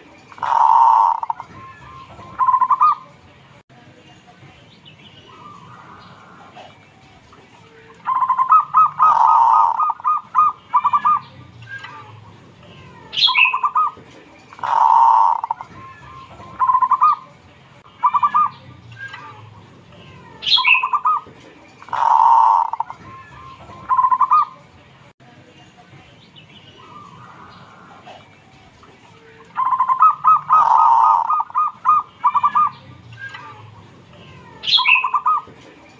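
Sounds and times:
dove cooing: 0.3 - 1.5, 8.1 - 11.2, 14.6 - 15.7, 21.9 - 23.0, 23.8 - 24.6, 29.6 - 32.8, 34.6 - 35.5
high-pitched bird chirp: 0.4 - 3.1, 8.0 - 14.0, 14.6 - 17.3, 17.9 - 19.5, 20.4 - 21.3, 21.9 - 24.6, 29.4 - 35.5.

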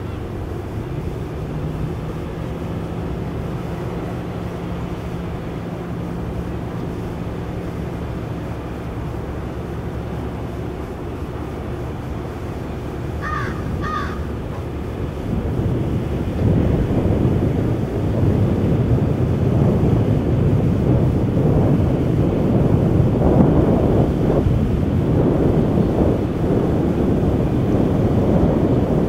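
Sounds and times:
boat engine running: 0.0 - 29.0
wind: 0.0 - 29.0
gull calls: 13.2 - 14.3.

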